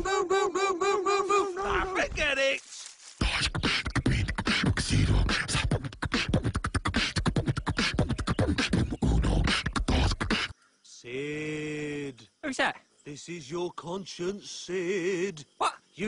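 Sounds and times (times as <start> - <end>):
person beatboxing: 3.2 - 10.5.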